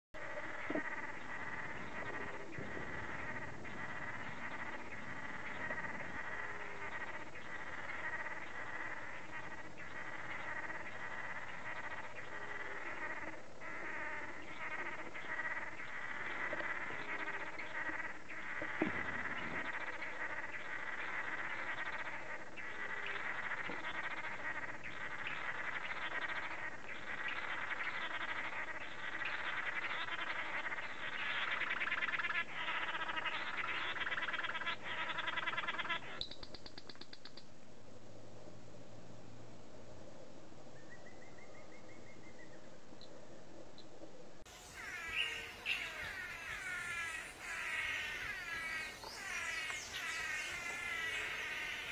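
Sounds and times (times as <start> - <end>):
forest chorus of calling animals: 0.2 - 36.3, 44.5 - 51.9
bird buzzing display calls: 44.5 - 51.9.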